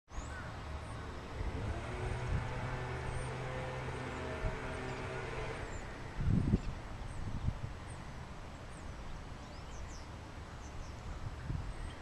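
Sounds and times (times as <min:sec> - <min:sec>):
vehicle engine hum: 0:00.1 - 0:09.0
loud low rumble: 0:00.6 - 0:07.2.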